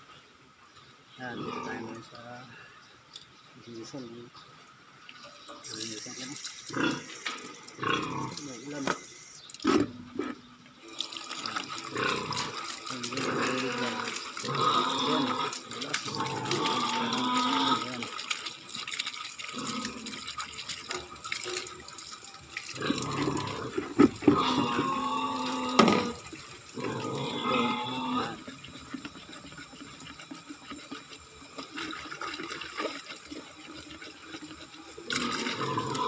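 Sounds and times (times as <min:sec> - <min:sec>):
faucet water splashing into plastic: 0:10.8 - 0:36.0.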